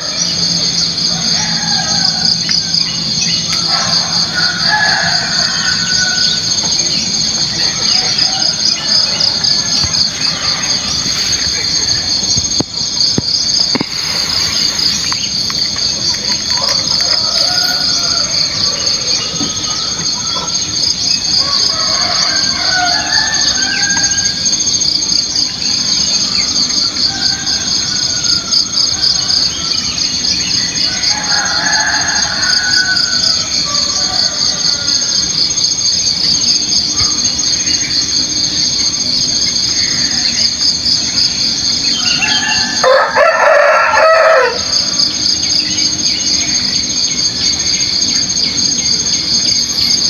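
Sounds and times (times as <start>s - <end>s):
bird calls: 0.0s - 27.4s
insects trilling: 0.0s - 50.0s.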